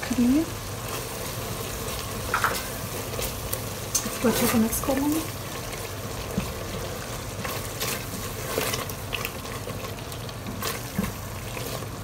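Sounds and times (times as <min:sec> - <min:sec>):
spatula scraping gravy in a pot: 0:05.4 - 0:12.0.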